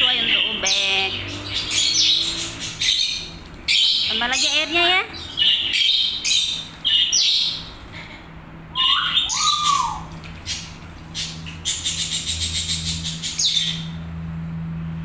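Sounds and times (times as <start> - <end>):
bird call: 8.7 - 10.1.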